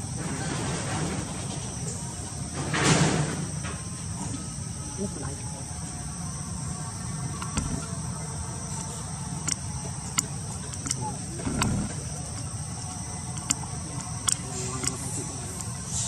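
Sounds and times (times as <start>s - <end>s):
high-pitched insect chorus: 0.0s - 16.0s
faint clicks: 7.2s - 16.0s.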